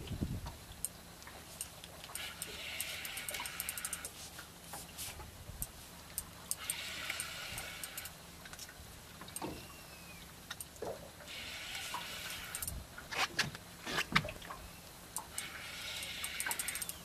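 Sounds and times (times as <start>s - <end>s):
steady low hum: 0.0s - 17.0s
small clicks: 0.8s - 4.2s, 5.6s - 9.6s, 11.7s - 12.8s, 15.2s - 17.0s
spinning reel whirring: 2.1s - 4.2s, 6.5s - 8.2s, 11.3s - 12.8s, 15.2s - 17.0s.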